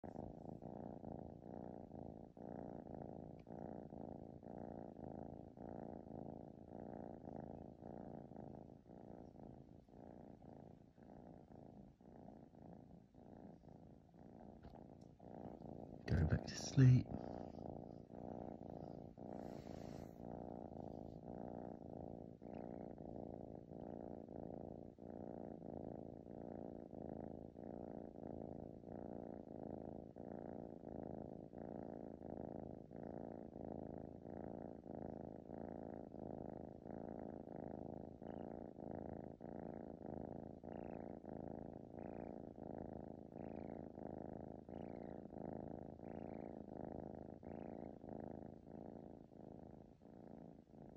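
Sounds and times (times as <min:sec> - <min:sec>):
kitten purring: 0:00.0 - 0:50.9.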